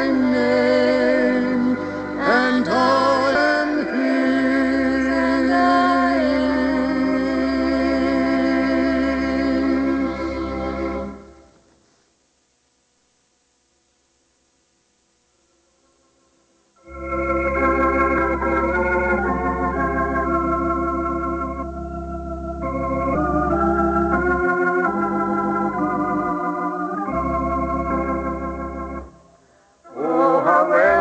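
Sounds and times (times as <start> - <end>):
organ chords with deep bass: 0.0 - 11.5, 16.8 - 29.4.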